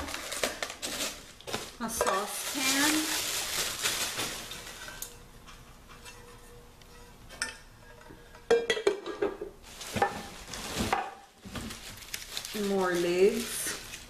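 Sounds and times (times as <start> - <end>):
metal saucepan clanking: 4.7 - 9.4.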